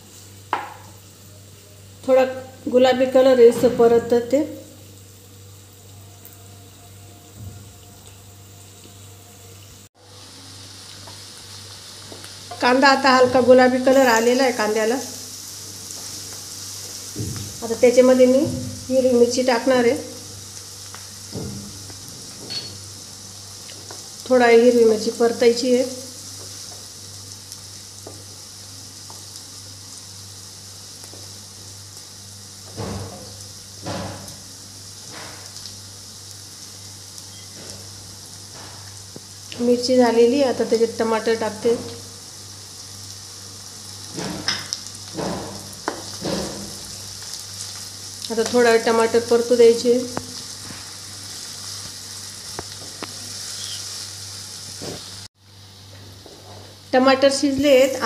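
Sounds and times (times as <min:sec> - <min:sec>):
food sizzling in hot oil: 0:00.0 - 0:58.0
wooden spatula knocking on pan: 0:00.5 - 0:00.8.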